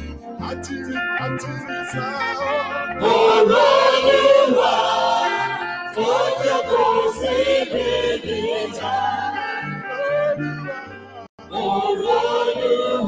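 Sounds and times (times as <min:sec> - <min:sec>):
bass line: 0:00.0 - 0:11.3
gospel choir singing: 0:02.2 - 0:10.4, 0:11.4 - 0:13.0.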